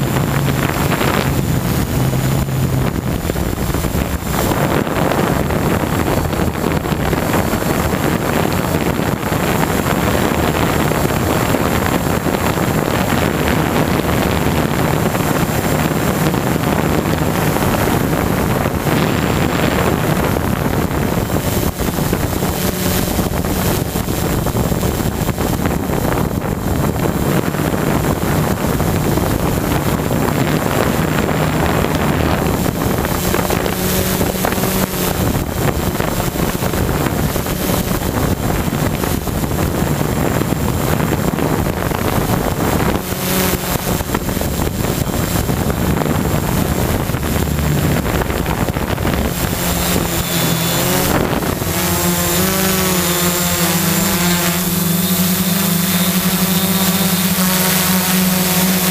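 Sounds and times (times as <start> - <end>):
drone motors and propellers whirring: 0.0 - 58.9
wind rushing over microphone: 0.0 - 58.9.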